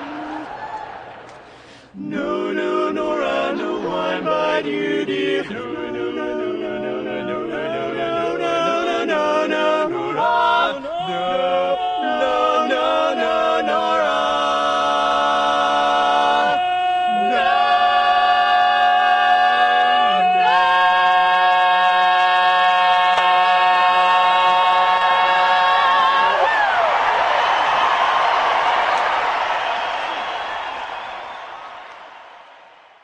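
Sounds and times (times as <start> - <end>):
male quartet singing a cappella: 1.9 - 26.5.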